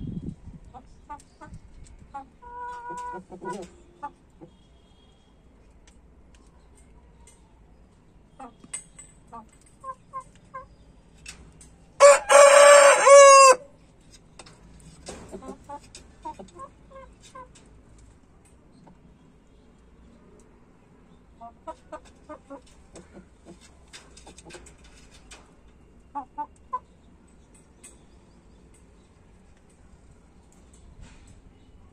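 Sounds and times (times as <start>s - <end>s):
soft hen clucks: 0.6s - 4.6s, 8.3s - 10.8s, 15.2s - 17.7s, 21.3s - 25.1s, 26.0s - 27.0s
rooster crowing: 12.0s - 13.7s.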